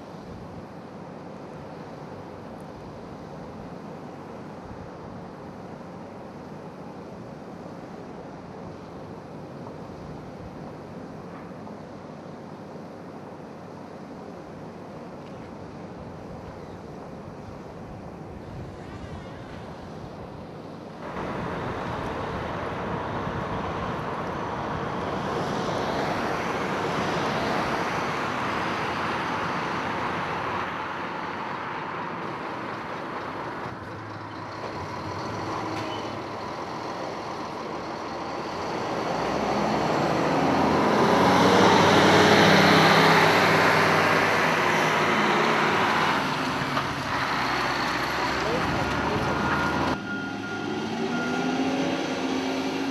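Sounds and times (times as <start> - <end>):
heavy motor vehicles: 17.8 - 52.9.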